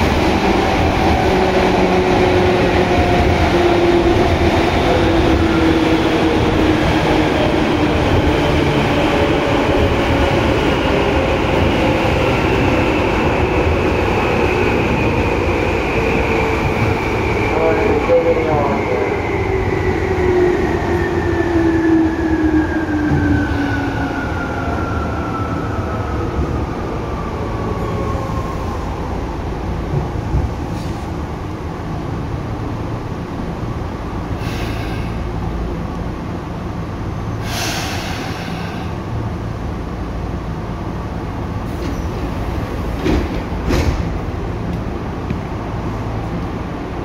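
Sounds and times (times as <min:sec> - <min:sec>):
wheels rumbling on rail: 0:00.0 - 0:47.0.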